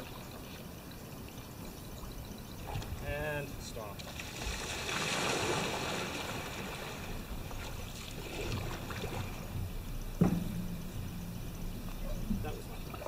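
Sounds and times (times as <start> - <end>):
canoe paddles splashing: 0.0 - 13.0
sudden knock: 10.2 - 12.4.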